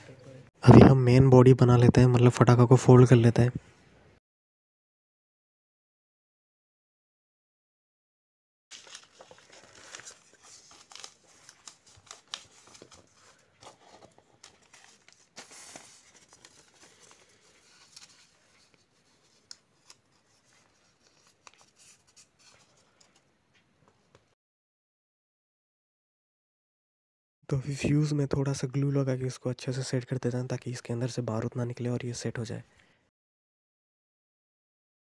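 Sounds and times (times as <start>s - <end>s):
paper being folded and creased: 8.7s - 22.9s.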